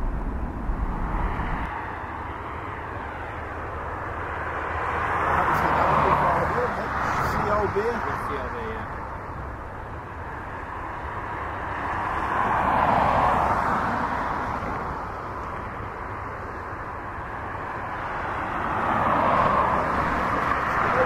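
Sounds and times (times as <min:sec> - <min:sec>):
jet engines taxiing: 0:00.0 - 0:01.7.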